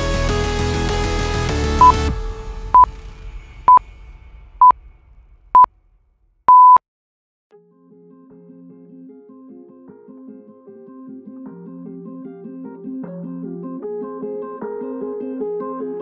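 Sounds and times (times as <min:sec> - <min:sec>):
long electronic beep: 0:06.5 - 0:06.8
short electronic beeps: 0:06.5 - 0:06.8
soft guitar music: 0:07.5 - 0:16.0.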